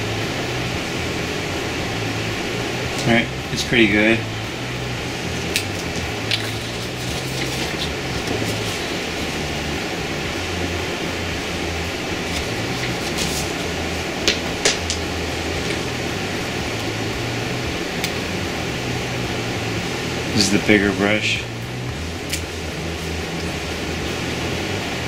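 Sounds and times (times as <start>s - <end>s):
room noise hum: 0.0s - 25.0s.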